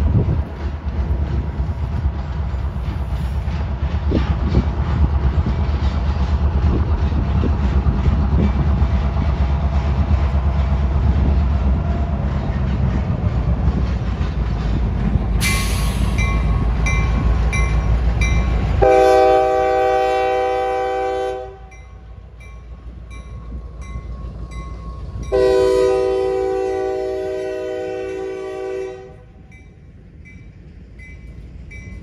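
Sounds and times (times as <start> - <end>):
diesel locomotive engine rumble: 0.0 - 32.0
train air horn: 18.8 - 21.7, 25.3 - 29.4.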